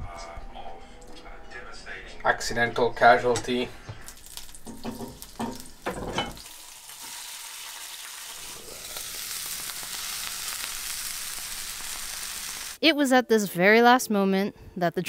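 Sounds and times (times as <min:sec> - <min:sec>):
lobster and garlic frying in oil: 0:04.0 - 0:12.8.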